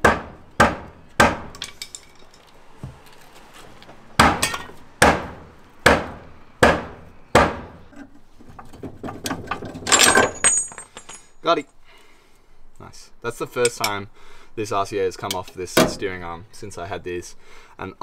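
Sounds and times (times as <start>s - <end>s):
small metal clinks: 1.6s - 2.6s, 9.8s - 11.5s.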